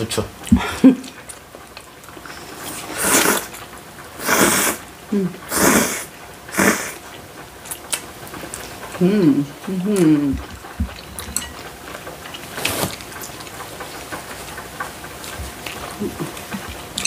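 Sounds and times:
people slurping noodles: 2.5 - 3.6, 4.2 - 7.1
person humming: 5.1 - 5.7, 9.0 - 10.4.

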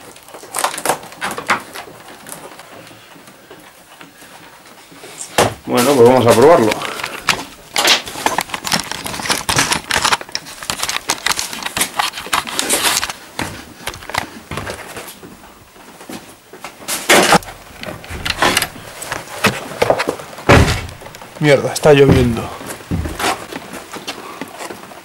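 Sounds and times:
cardboard clattering and rustling: 0.0 - 25.0
metal door bolt clicks: 17.7 - 18.9
loud knock: 20.5 - 21.2, 22.0 - 23.3.

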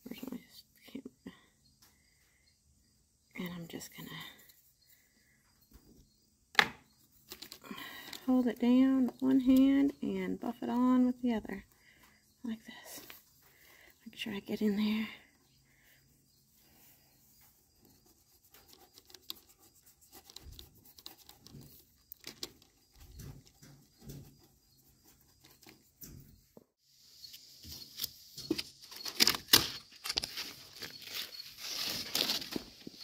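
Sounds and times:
stencil sheet crinkling: 27.8 - 33.0.

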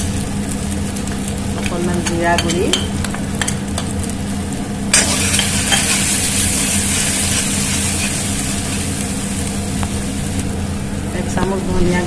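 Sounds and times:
spices sizzling in hot oil: 0.0 - 12.0
spoon scraping and stirring: 5.2 - 6.2.

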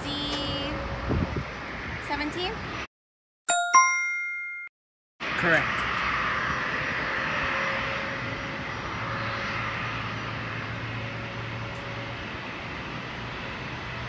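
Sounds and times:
airplane engine rush: 5.2 - 14.0.

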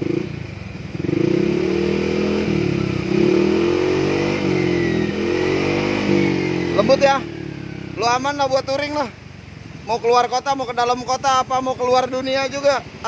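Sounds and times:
scooter engine revving: 0.0 - 9.8.

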